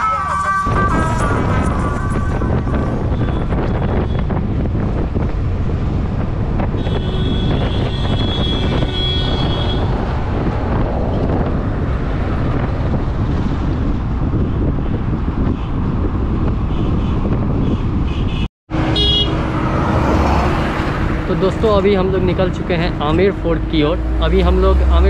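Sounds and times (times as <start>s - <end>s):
road noise: 0.0s - 25.0s
wind buffeting microphone: 0.6s - 18.5s.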